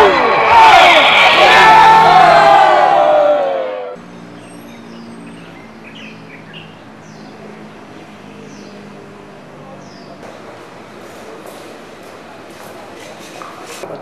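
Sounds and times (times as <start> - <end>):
crowd chanting: 0.0 - 4.0
birds chirping: 4.0 - 11.4.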